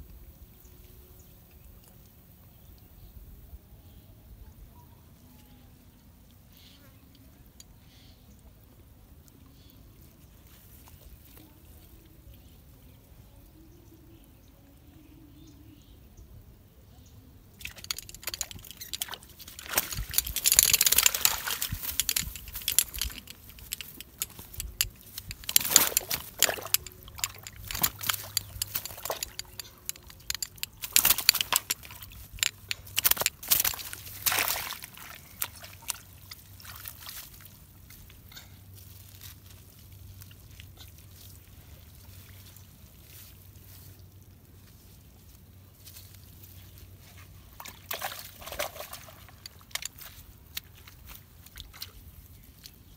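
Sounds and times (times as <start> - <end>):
water splashing: 17.6 - 29.6, 30.2 - 37.5
light rustling: 17.6 - 35.9.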